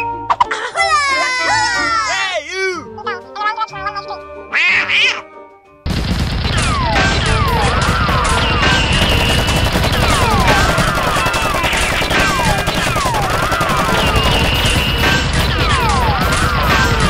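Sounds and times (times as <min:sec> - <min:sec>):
rapid gunshot sound effects: 0:05.9 - 0:17.0.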